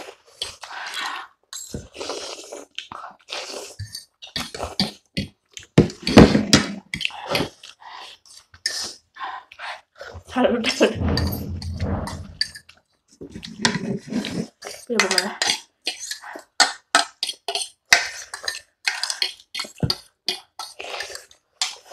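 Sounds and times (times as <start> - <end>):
people slurping noodles: 0.0 - 5.1, 13.3 - 21.9.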